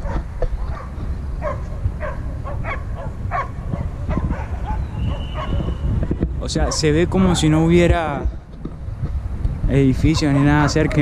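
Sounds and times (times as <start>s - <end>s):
dogs barking: 0.0s - 5.8s, 6.6s - 7.4s, 10.0s - 11.0s
steady low rumble: 0.0s - 11.0s.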